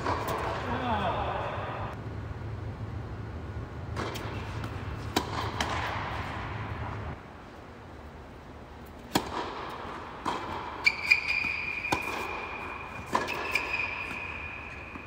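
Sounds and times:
tennis ball strikes and bounces: 0.0 - 0.6, 3.9 - 7.1, 9.0 - 15.0.

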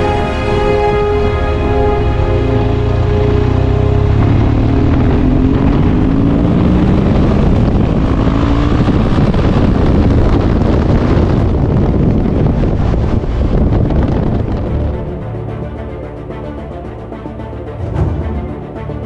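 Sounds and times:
motorcycle engine accelerating: 0.0 - 15.2
wind rushing over microphone: 0.0 - 16.1.

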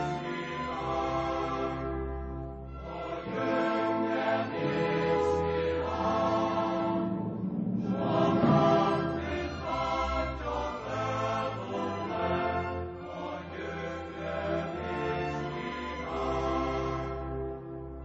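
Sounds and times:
low sustained accompaniment: 2.2 - 14.5
choir singing held notes: 2.8 - 17.2.

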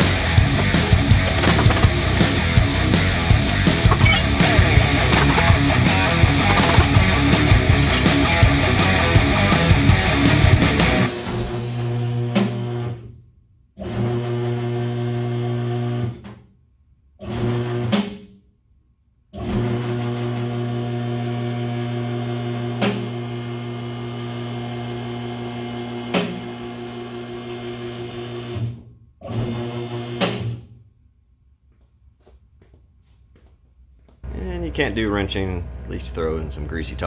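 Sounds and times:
hydraulic pump motor humming: 1.0 - 10.8
lift clicks: 3.8 - 8.6.

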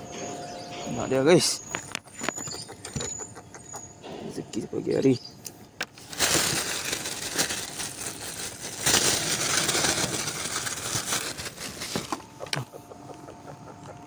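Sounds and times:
mesh bag rustling and crinkling: 6.0 - 12.3.

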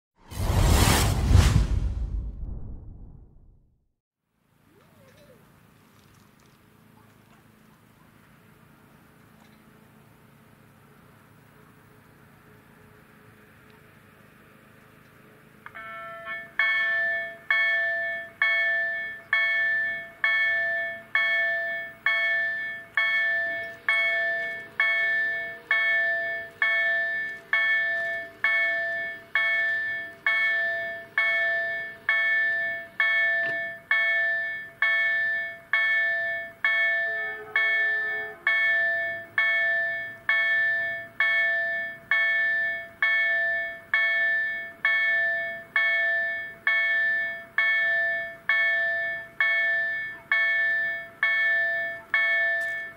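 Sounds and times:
level crossing warning bell: 15.6 - 52.9.

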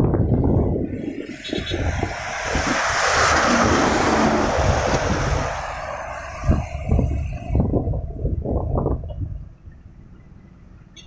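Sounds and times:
wind buffeting microphone: 0.0 - 10.1
vehicle passing close by: 0.9 - 8.3.

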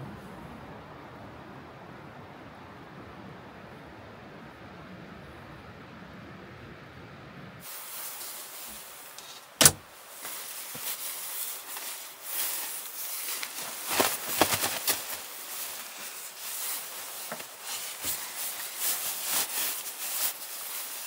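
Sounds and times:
padded trousers rustling: 7.6 - 21.0.

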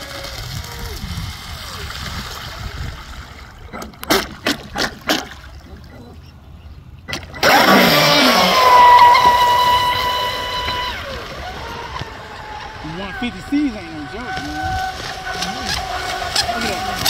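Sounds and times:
electric boat motor whine: 7.0 - 17.0.

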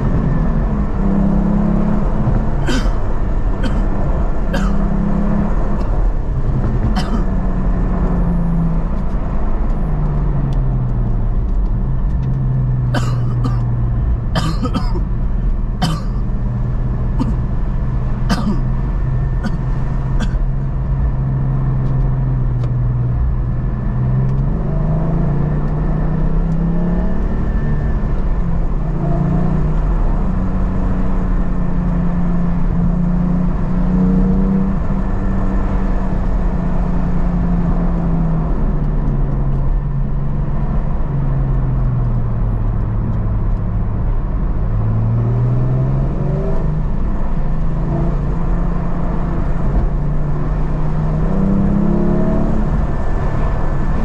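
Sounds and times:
car engine from inside cabin: 0.0 - 54.0
road noise on wet surface: 5.4 - 31.5, 36.9 - 54.0.

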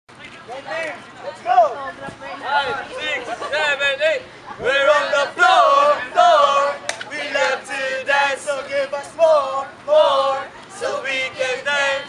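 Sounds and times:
group chanting a cheer: 4.6 - 12.0.

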